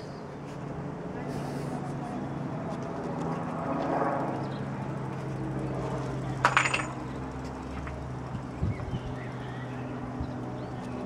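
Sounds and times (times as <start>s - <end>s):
distant helicopter drone: 0.0s - 11.0s.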